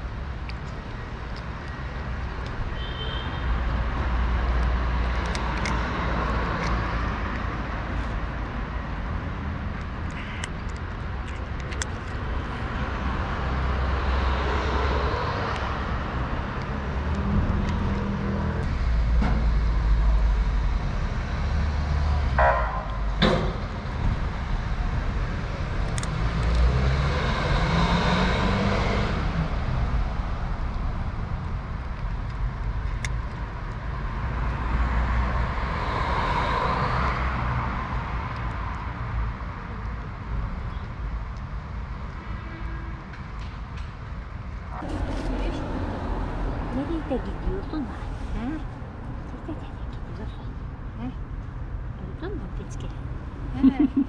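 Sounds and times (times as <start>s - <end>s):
cars passing: 0.0s - 54.0s.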